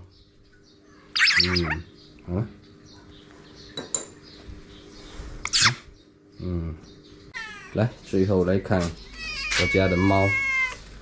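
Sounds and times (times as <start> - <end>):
magpie squawking: 1.1 - 1.8.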